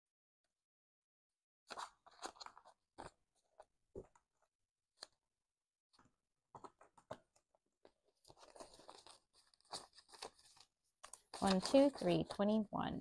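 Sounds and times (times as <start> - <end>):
paper banknotes rustling: 8.1 - 12.6.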